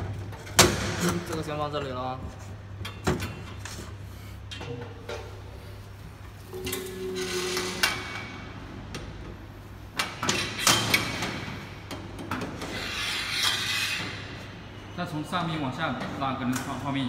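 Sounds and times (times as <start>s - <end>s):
metal scraping: 12.6s - 14.4s.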